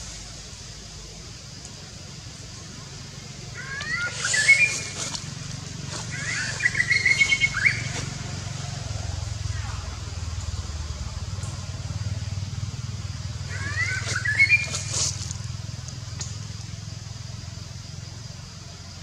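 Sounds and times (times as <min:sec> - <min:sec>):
low motor hum: 0:01.7 - 0:19.0
high rising chirping calls: 0:03.3 - 0:10.6, 0:13.0 - 0:15.5.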